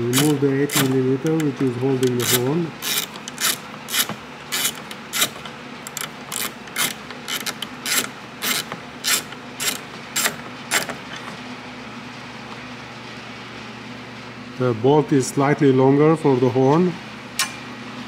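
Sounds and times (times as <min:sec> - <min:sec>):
ratchet wrench clicking: 0:00.1 - 0:01.5, 0:02.1 - 0:10.9.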